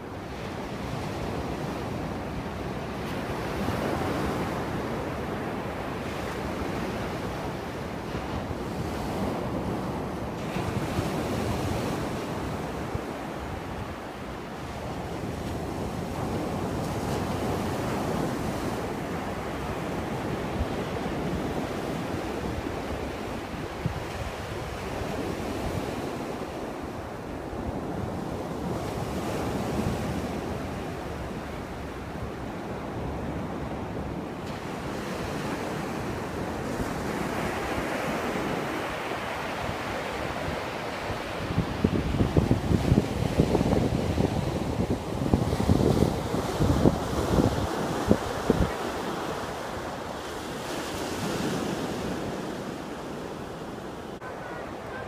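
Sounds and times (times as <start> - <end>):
surf breaking on a beach: 0.0 - 55.0
wind rumbling on microphone: 35.8 - 50.2.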